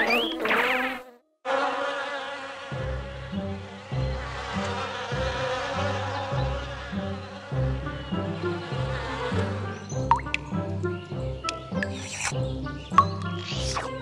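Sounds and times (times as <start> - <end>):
cartoon bee buzzing: 0.0 - 8.6, 11.5 - 12.4, 13.1 - 14.0
plodding bass line music: 10.0 - 14.0.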